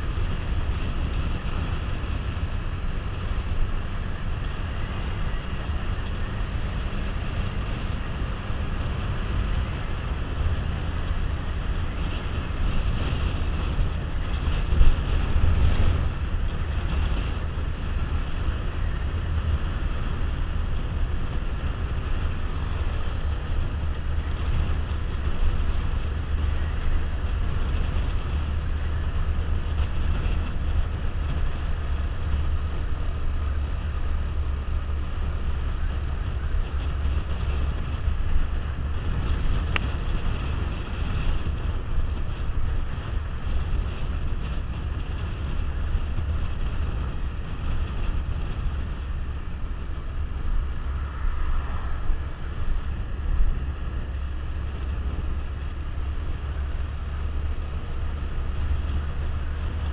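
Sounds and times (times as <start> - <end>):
motorcycle engine running: 0.0 - 59.9
wind rushing over microphone: 0.0 - 59.9.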